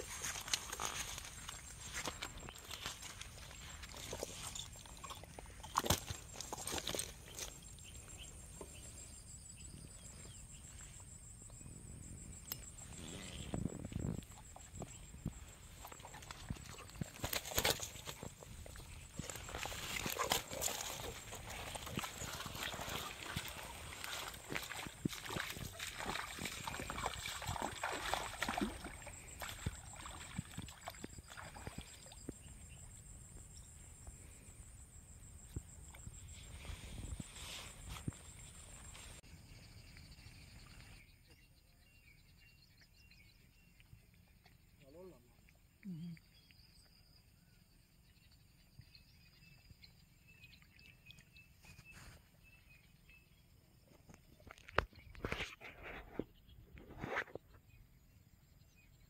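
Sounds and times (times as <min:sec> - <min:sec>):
small splashes and clicks: 0:00.0 - 0:07.9, 0:15.7 - 0:32.4
water sloshing from wading: 0:13.9 - 0:32.3.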